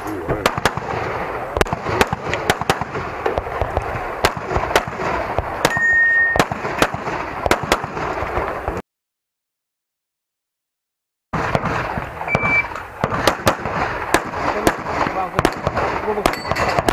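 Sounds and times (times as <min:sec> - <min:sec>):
pistol shots: 0:00.3 - 0:08.8, 0:11.4 - 0:16.9
steady high beep: 0:05.7 - 0:06.4, 0:12.3 - 0:12.7.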